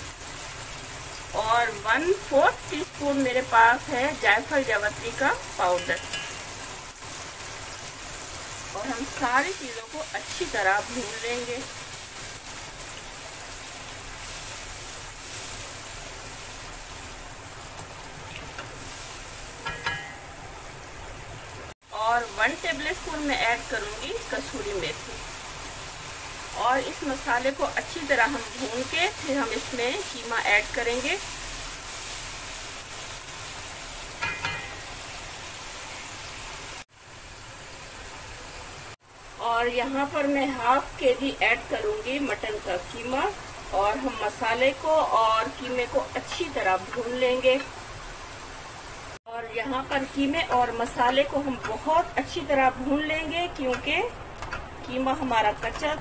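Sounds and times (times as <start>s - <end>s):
paste sizzling in hot oil: 0.0s - 56.0s
spatula stirring in wok: 5.5s - 6.6s, 10.1s - 20.4s
spoon stirring in a wok: 5.8s - 6.6s.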